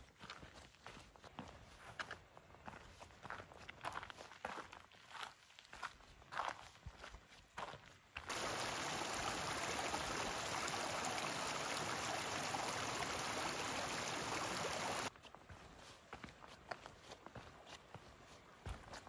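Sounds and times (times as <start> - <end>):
footsteps on stony trail: 0.1 - 19.0
stream running over rocks: 8.3 - 15.1.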